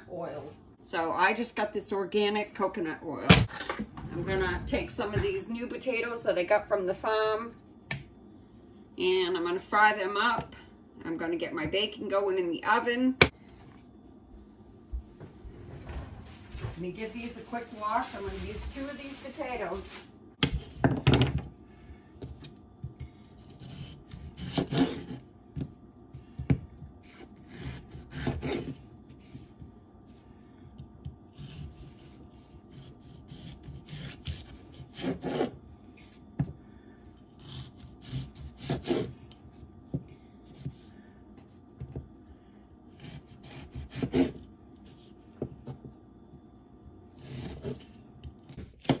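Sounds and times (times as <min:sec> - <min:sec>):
serrated knife sawing through potatoes: 0:23.4 - 0:25.2, 0:27.0 - 0:29.5, 0:31.3 - 0:35.6, 0:37.2 - 0:39.2, 0:42.9 - 0:45.2, 0:47.2 - 0:47.9.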